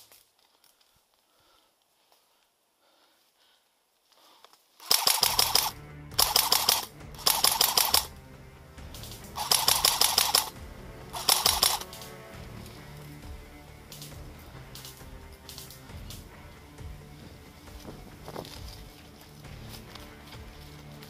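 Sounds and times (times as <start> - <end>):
airsoft rifle bursts: 4.8 - 8.2, 8.9 - 12.4
background music: 4.8 - 21.0.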